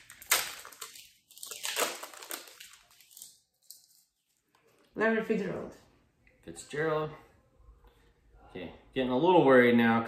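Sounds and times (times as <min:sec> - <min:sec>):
plastic wrapper crinkling and tearing: 0:00.0 - 0:04.9.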